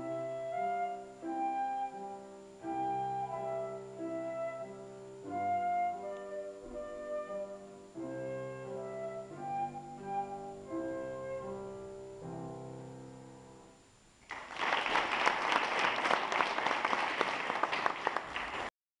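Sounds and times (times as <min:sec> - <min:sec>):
flute with piano accompaniment: 0:00.0 - 0:12.7
audience applause: 0:14.2 - 0:18.7.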